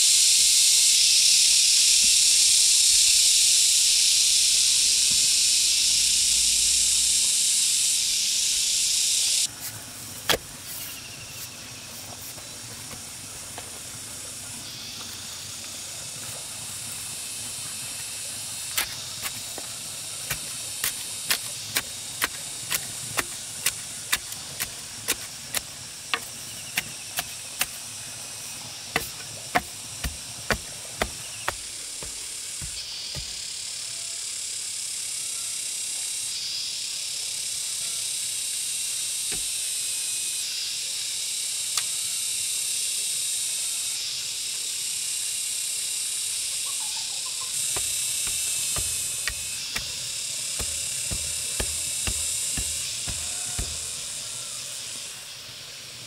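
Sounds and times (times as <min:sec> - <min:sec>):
high-pitched insect drone: 0:00.0 - 0:09.5, 0:14.0 - 0:56.0
wooden pole tamping soil: 0:09.5 - 0:13.8, 0:17.6 - 0:33.5, 0:47.6 - 0:54.4.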